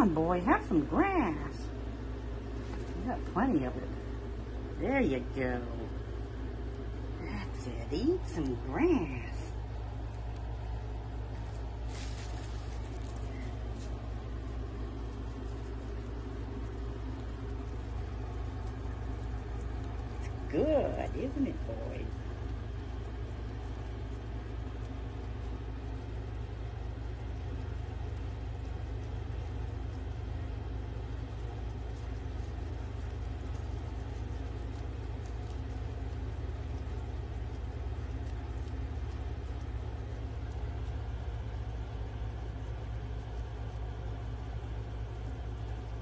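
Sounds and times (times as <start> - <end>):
guinea pigs chewing grass: 0.0 - 46.0
low rumble: 0.0 - 46.0.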